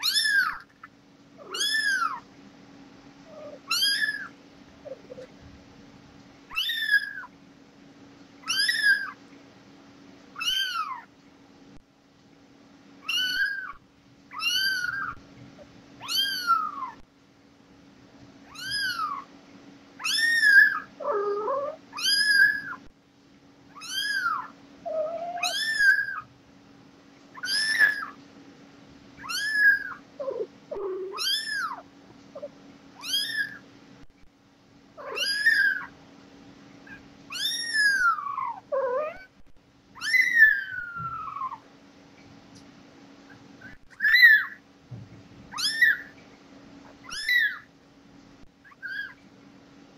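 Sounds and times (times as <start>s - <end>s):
kitten mewing: 0.0s - 0.7s, 1.4s - 2.3s, 3.3s - 5.3s, 13.0s - 15.2s, 16.0s - 17.0s, 18.5s - 19.3s, 20.0s - 22.9s, 23.7s - 26.3s, 27.4s - 28.2s, 29.2s - 33.6s, 35.0s - 36.0s, 36.8s - 41.7s, 45.5s - 46.1s, 46.8s - 47.7s, 48.6s - 49.2s.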